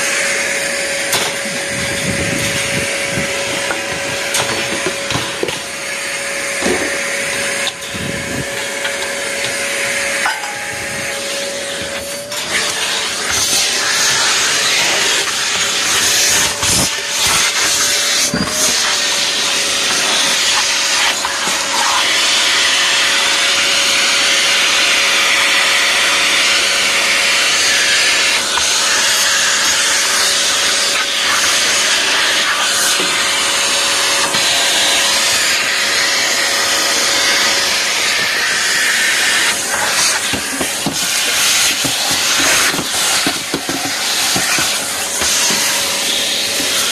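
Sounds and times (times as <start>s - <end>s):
constant humming tone: 0.0s - 22.1s
machine running with air rush: 0.0s - 46.9s.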